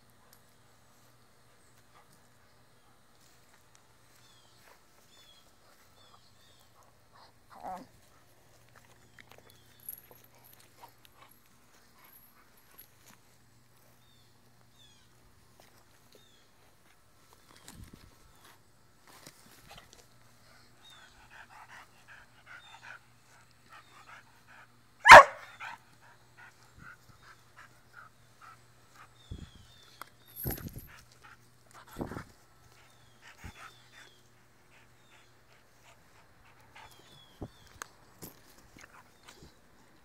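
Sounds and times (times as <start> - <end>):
dog barking: 25.0 - 25.7.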